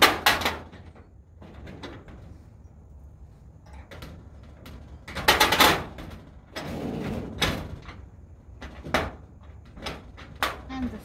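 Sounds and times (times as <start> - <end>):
metal door scraping: 3.7 - 10.4.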